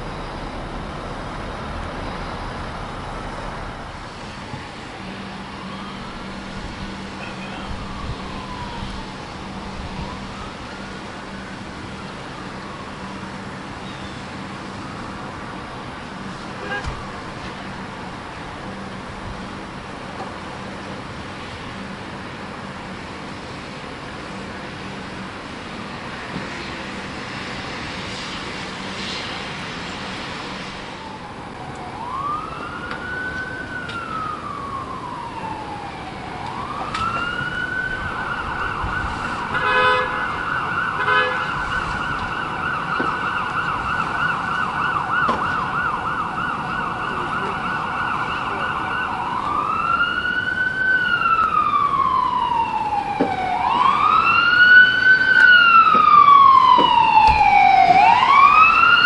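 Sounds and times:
emergency siren wailing and yelping: 0:00.0 - 0:21.6, 0:30.7 - 0:59.0
short horn blasts: 0:39.5 - 0:40.2, 0:41.0 - 0:41.5.

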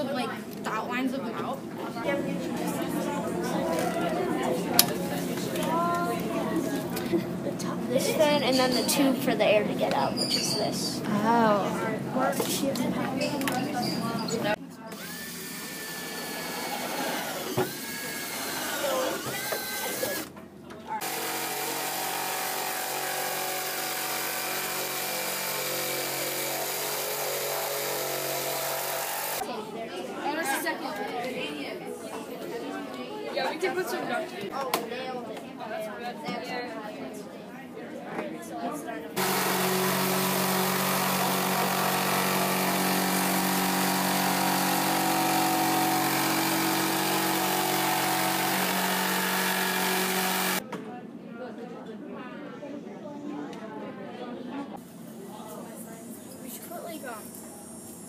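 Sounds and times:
electric jigsaw cutting: 0:15.0 - 0:20.3, 0:21.0 - 0:29.4, 0:39.2 - 0:50.6.

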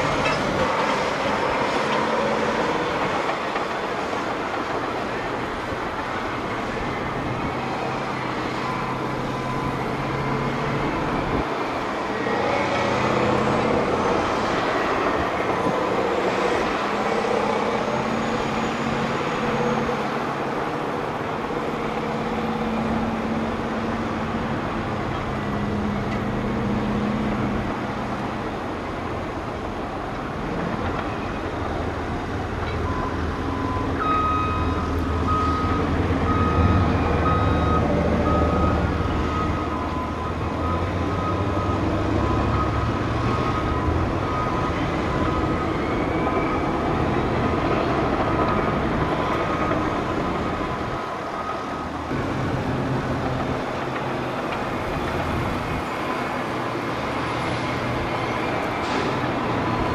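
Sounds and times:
dump truck engines running: 0:00.0 - 0:59.9
reversing alarm beeping: 0:07.2 - 0:14.2, 0:32.7 - 0:52.2.

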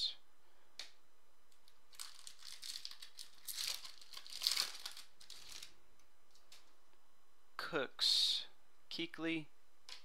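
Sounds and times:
wrapper crinkling: 0:01.6 - 0:06.7.

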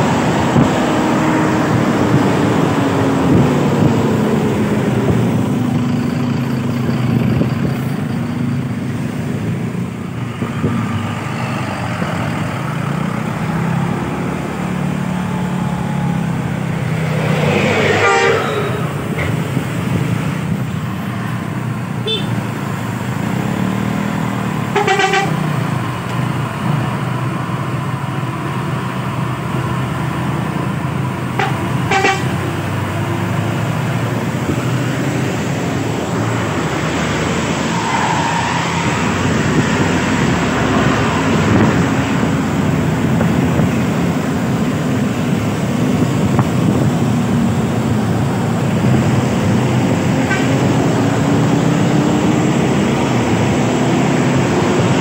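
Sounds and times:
bus engine running: 0:00.0 - 0:55.0
heavy road traffic: 0:00.0 - 0:55.0
horn toot: 0:17.7 - 0:19.2, 0:24.7 - 0:25.4, 0:31.4 - 0:32.4.

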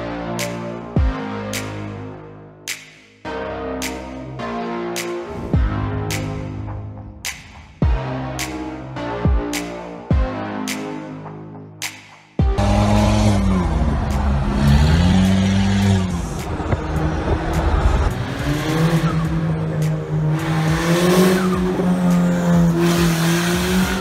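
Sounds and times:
car engine revving: 0:12.4 - 0:24.0.

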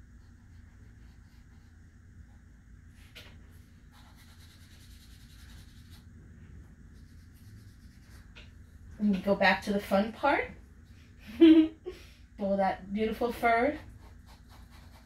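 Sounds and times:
pencil scratching on paper: 0:00.2 - 0:01.8, 0:03.9 - 0:06.0, 0:06.9 - 0:08.4, 0:13.4 - 0:15.0.

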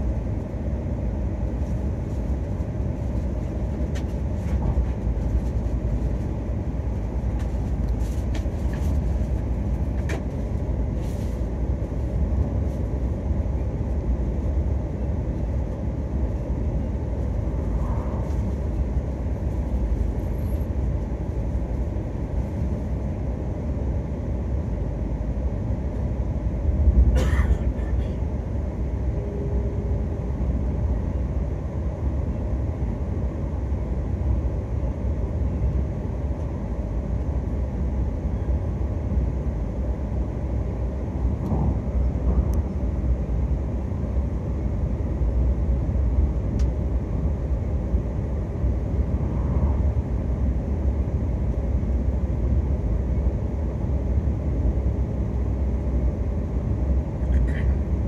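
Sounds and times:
train cabin low rumble: 0:00.0 - 0:58.0.

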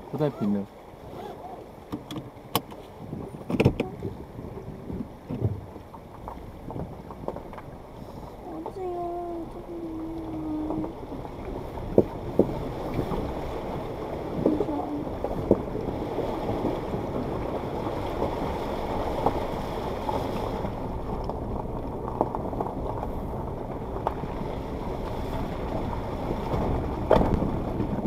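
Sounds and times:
water rumbling: 0:00.0 - 0:28.0
stones knocking against vehicle: 0:26.3 - 0:28.0.

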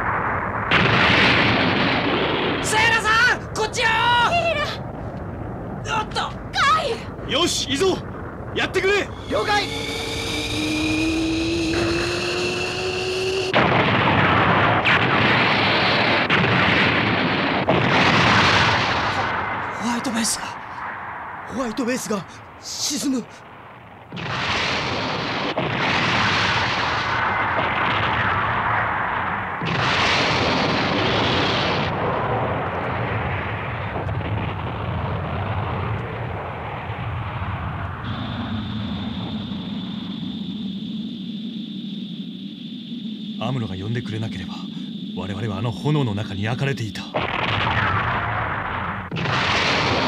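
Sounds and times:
explosions and rumbling: 0:00.0 - 0:50.0
mechanical hum with rising tone: 0:09.5 - 0:13.5.

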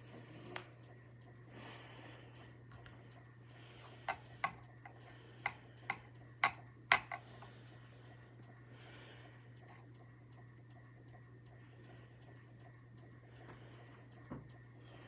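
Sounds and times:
steady low hum: 0:00.0 - 0:15.0
plastic items clicking and tapping: 0:05.4 - 0:07.2.

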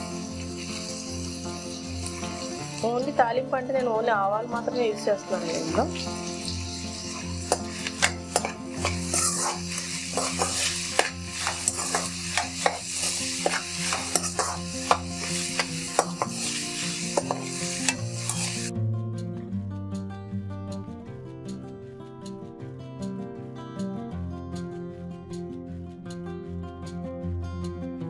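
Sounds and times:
onions sizzling in hot oil: 0:00.0 - 0:03.2, 0:04.5 - 0:18.7
spoon scraping a pan: 0:05.5 - 0:18.7.

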